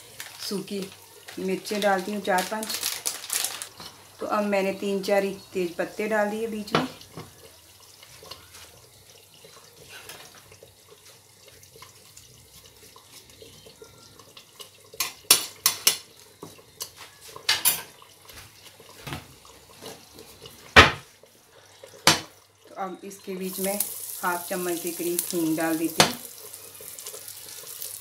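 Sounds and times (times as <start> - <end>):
spices sizzling in oil: 0.0 - 28.0.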